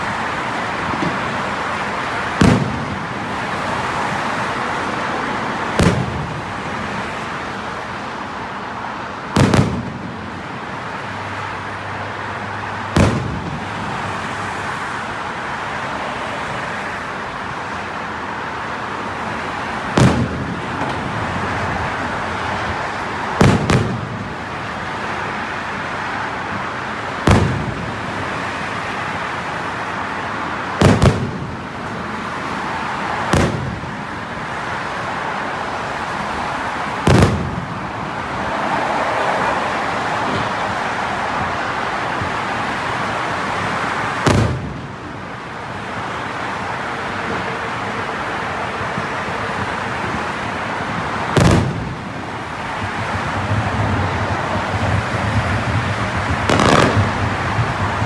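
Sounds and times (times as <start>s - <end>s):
steady background din: 0.0s - 8.0s, 17.4s - 58.0s
fireworks shells bursting: 55.8s - 57.8s.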